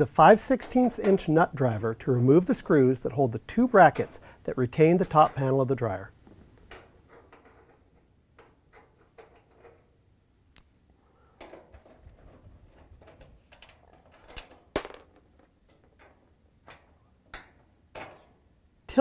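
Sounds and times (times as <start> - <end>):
metal-on-metal scraping: 3.8 - 10.0.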